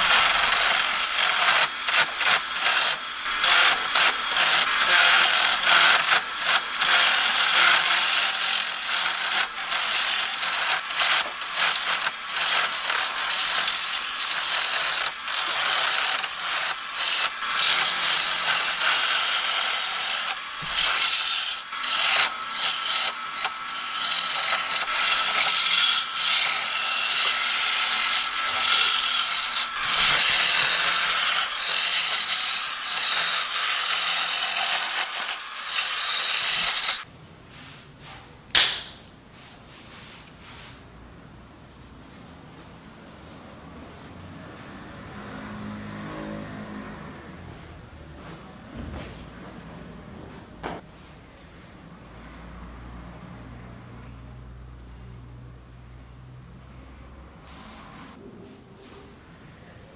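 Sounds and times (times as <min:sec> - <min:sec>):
chisel scraping wood on lathe: 0:00.0 - 0:37.1.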